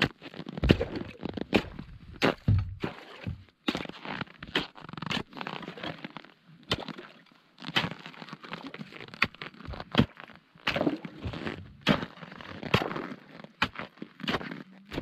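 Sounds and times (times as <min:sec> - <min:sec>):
ice crunching and cracking: 0:00.0 - 0:15.0
ice chisel striking ice: 0:10.7 - 0:15.0.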